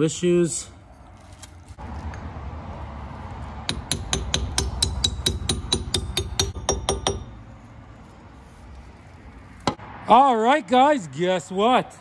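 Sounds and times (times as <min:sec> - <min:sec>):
hammer tapping metal: 0:03.7 - 0:07.4.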